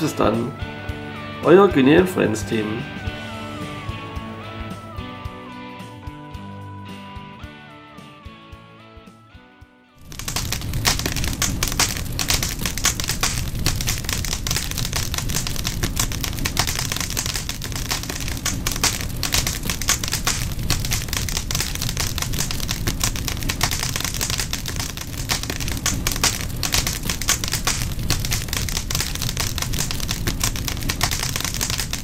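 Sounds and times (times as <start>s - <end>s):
fire crackling: 10.0s - 32.0s.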